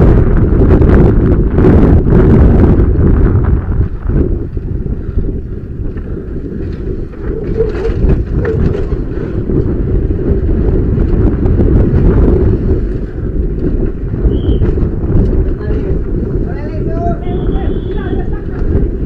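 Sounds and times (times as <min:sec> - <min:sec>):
bike knocking and rattling: 0:00.0 - 0:19.0
low rumble: 0:00.0 - 0:19.0
wind buffeting microphone: 0:00.0 - 0:19.0.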